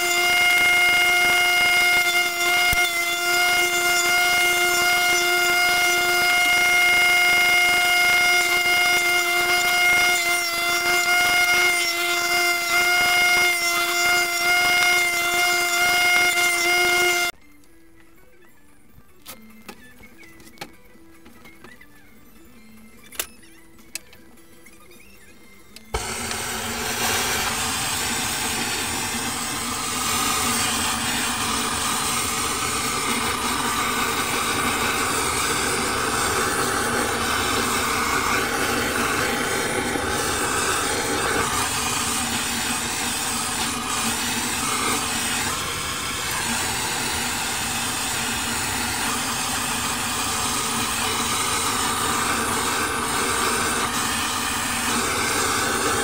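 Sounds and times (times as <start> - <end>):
blowtorch flame hissing: 25.9 - 56.0.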